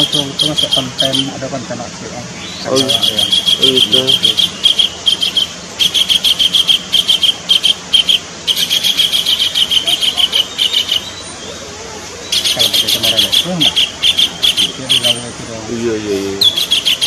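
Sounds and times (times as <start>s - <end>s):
kingfisher calling: 0.0s - 17.0s.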